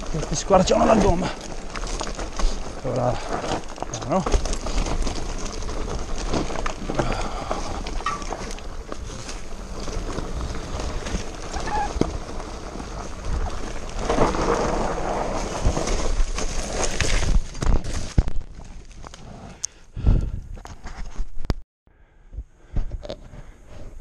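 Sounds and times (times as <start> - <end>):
bike rattling over rocks: 0.0 - 19.2.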